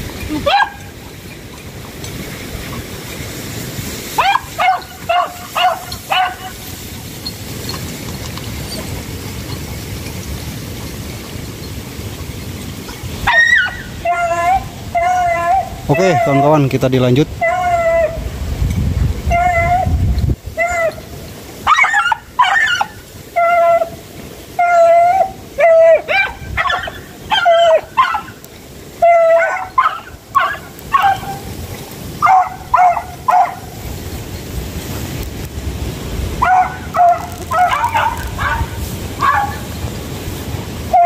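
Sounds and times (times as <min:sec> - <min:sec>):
dog yelping barks: 0:00.3 - 0:01.0, 0:04.2 - 0:06.7, 0:13.2 - 0:16.6, 0:17.4 - 0:18.3, 0:19.3 - 0:20.0, 0:20.6 - 0:24.0, 0:24.6 - 0:28.4, 0:29.0 - 0:31.5, 0:32.2 - 0:33.8, 0:36.4 - 0:39.7.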